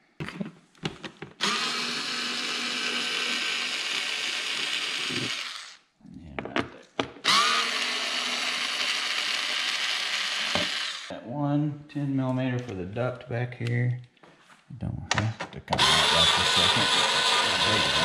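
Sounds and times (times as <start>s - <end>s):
cordless drill spinning: 1.4s - 5.8s, 7.2s - 11.1s, 15.8s - 18.0s.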